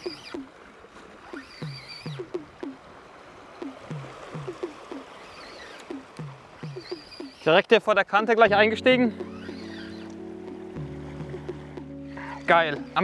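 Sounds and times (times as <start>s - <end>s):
looping low notes with high held tone: 8.5s - 13.0s.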